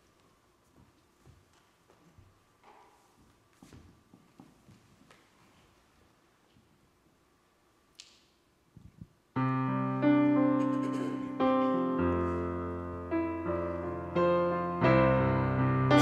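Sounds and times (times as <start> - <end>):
slow piano chords on keyboard: 9.4 - 16.0.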